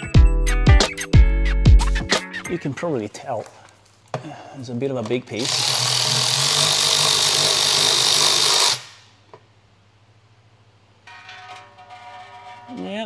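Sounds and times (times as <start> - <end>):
electric ratchet whirring: 5.4 - 9.1.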